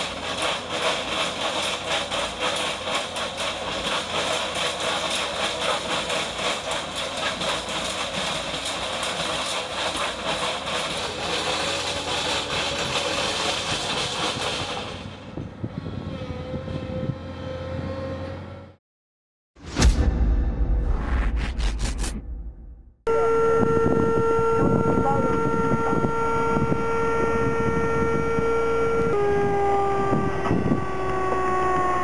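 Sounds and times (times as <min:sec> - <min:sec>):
saw wheel grinding through stone: 0:00.0 - 0:16.2, 0:23.1 - 0:32.0
machine running with steady tone: 0:23.1 - 0:32.0.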